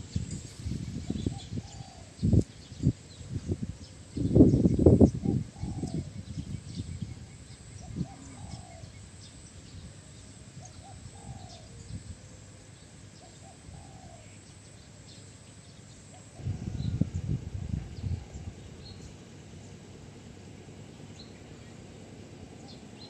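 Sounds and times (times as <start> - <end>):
faint low rumbling: 0.0 - 23.0
dove cooing: 1.1 - 2.3, 5.1 - 6.2, 7.8 - 9.0, 10.6 - 12.0, 13.1 - 14.4.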